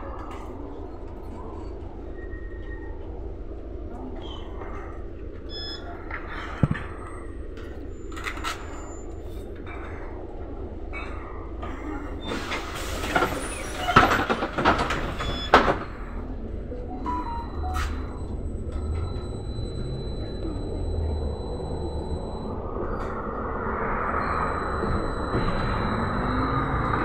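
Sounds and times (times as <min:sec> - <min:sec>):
trolleybus moving off: 0:00.0 - 0:27.0
bus doors hissing and clunking: 0:12.2 - 0:16.3.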